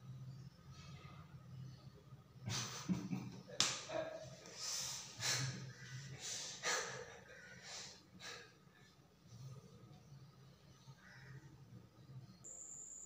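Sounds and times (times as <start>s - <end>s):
faint low hum: 0.0s - 4.5s, 5.2s - 13.0s
person breathing heavily: 4.5s - 9.0s.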